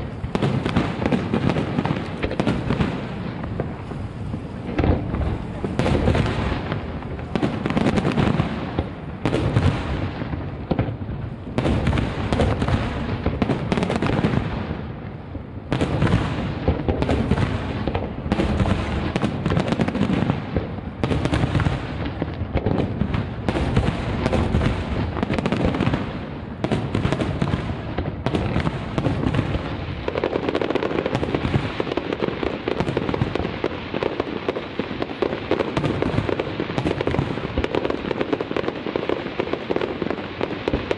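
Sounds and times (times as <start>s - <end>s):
firework crackling: 0.0s - 40.9s
firework shells booming: 0.0s - 40.9s.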